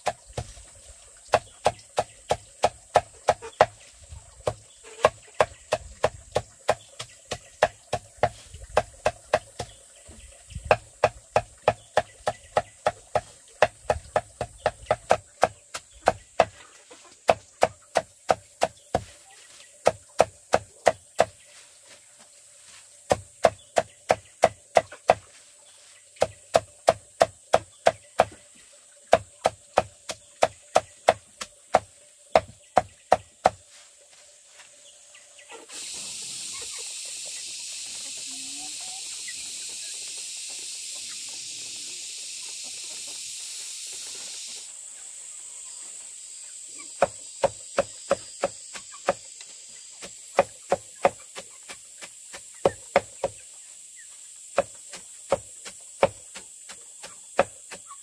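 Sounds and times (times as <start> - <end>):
blade chopping leafy vines: 1.3 - 3.8, 4.4 - 9.7, 10.7 - 19.2, 19.8 - 21.4, 23.0 - 25.4, 26.2 - 28.4, 29.1 - 33.6, 47.0 - 49.3, 50.0 - 53.4, 54.6 - 58.0.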